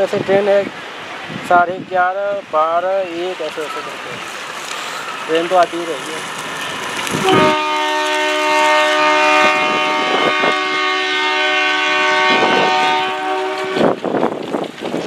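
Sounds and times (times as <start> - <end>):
locomotive air horn blast: 7.2 - 14.0.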